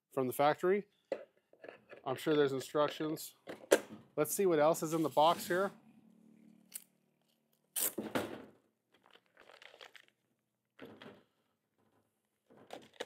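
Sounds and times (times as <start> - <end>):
plastic bag crinkling: 8.9 - 10.2.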